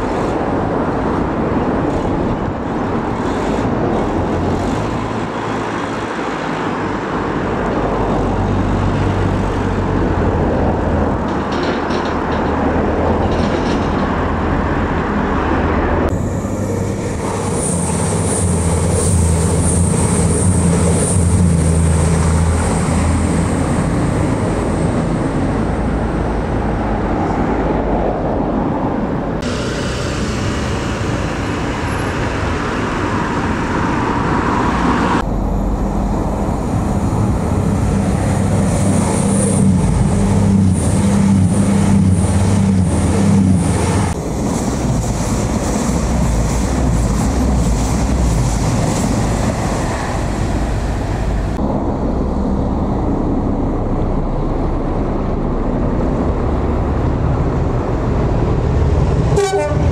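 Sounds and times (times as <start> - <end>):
diesel train passing: 0.0 - 59.9
wheel clicks over rail joints: 11.0 - 14.5.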